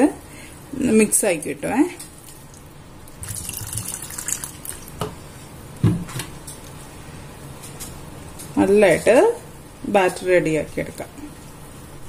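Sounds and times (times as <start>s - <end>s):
liquid pouring into bowl: 2.2s - 5.1s.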